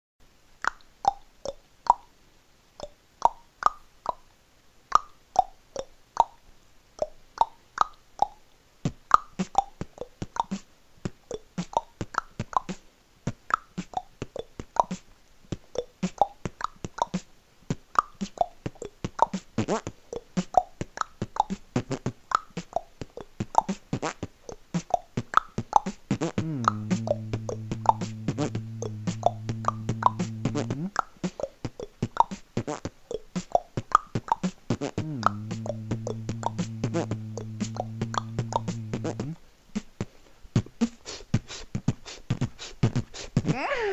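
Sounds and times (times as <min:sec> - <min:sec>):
beatboxing vocal percussion: 0:07.0 - 0:43.9
buzzing lip bass: 0:26.2 - 0:31.0, 0:34.8 - 0:39.4.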